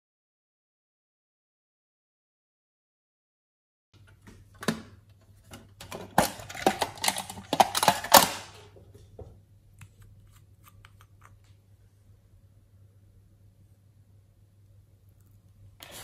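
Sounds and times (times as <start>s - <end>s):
small hard objects clattering: 5.9s - 8.6s.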